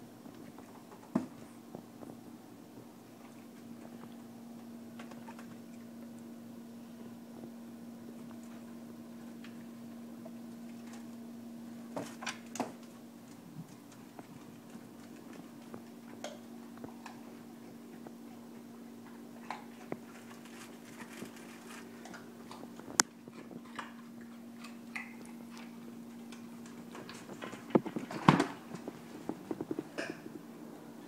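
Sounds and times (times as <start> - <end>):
steady low hum: 0.0 - 31.0
carrots crunching: 19.0 - 30.2.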